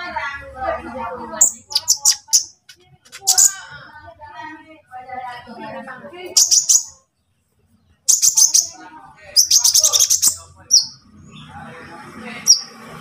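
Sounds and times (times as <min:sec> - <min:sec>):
sunbird twittering: 0:01.4 - 0:03.6, 0:06.4 - 0:06.9, 0:08.1 - 0:08.8, 0:09.4 - 0:11.5.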